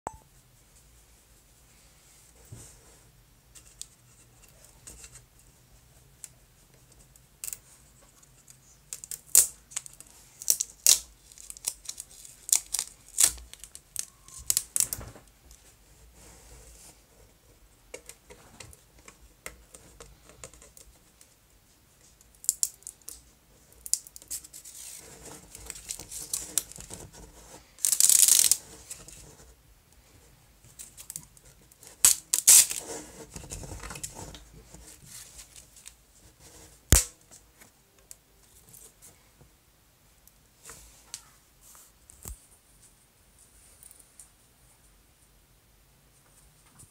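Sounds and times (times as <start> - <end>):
plastic label crinkling: 8.9 - 15.0, 27.8 - 29.2, 31.9 - 36.0
plastic label tearing: 9.0 - 15.0, 27.8 - 28.6, 32.0 - 32.8, 36.9 - 37.1.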